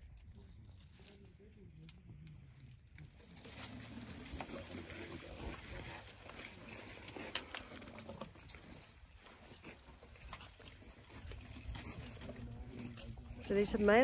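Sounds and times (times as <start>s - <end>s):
rustling in dry grass: 2.9s - 14.0s.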